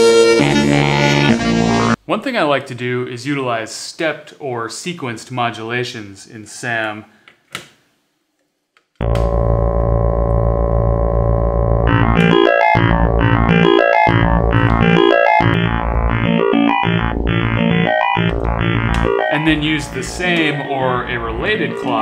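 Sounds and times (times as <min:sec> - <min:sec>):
synthesizer drone: 0:09.0 - 0:22.0
synthesizer stepping through tones: 0:09.0 - 0:22.0.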